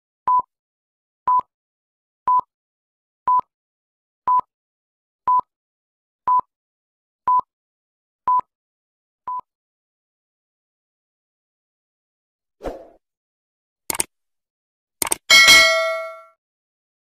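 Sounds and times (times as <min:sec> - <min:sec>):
small clicks: 0:15.0 - 0:15.3.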